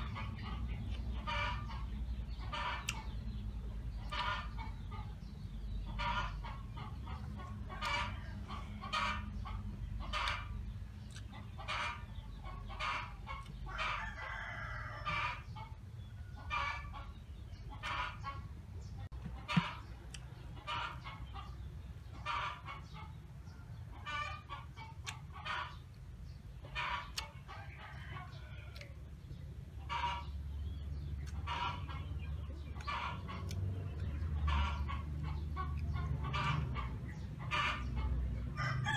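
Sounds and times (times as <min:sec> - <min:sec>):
chickens clucking: 0:00.0 - 0:38.9
rooster crowing: 0:13.7 - 0:15.2, 0:38.5 - 0:38.9.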